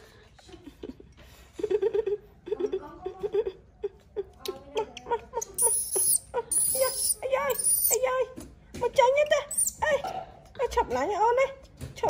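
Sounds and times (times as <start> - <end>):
baby monkey whimpering: 5.6 - 8.0.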